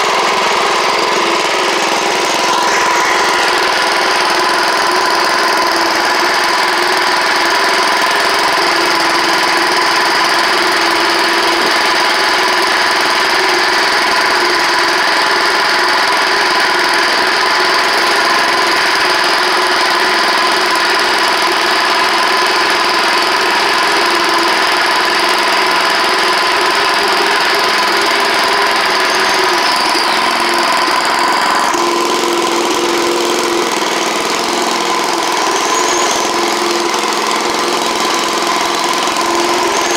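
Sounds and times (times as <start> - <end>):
high whine: 0.0 - 6.0
garden tractor engine running: 0.0 - 39.9.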